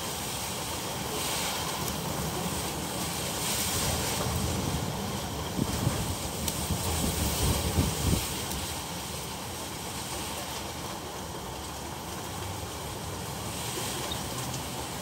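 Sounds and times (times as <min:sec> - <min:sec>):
heavy rain hissing: 0:00.0 - 0:15.0
roaring wind: 0:00.1 - 0:10.5
wind gusts buffeting microphone: 0:01.7 - 0:09.1.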